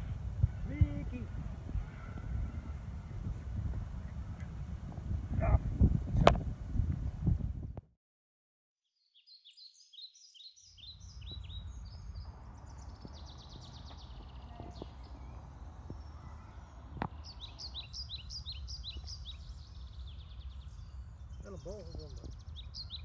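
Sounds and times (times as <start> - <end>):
songbirds singing: 0.0 - 5.8, 9.0 - 23.0
steady low rumble: 0.0 - 7.8.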